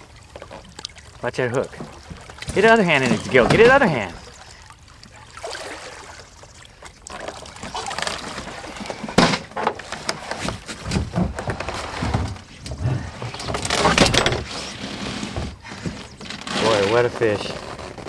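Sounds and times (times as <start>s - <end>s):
water splashing: 0.0s - 10.7s.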